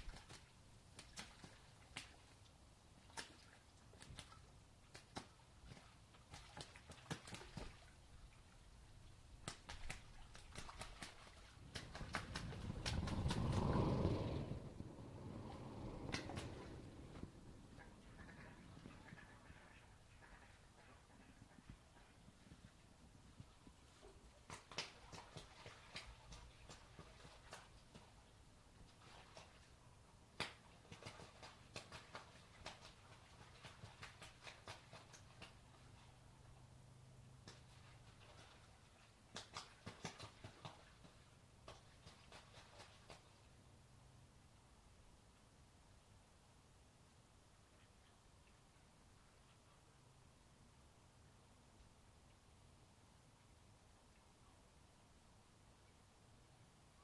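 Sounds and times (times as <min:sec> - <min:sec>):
ducks splashing in water: 0:00.0 - 0:02.4, 0:03.0 - 0:08.6, 0:09.3 - 0:22.2, 0:23.9 - 0:36.2, 0:37.4 - 0:43.5
wing slaps: 0:09.4 - 0:14.6, 0:15.9 - 0:17.3.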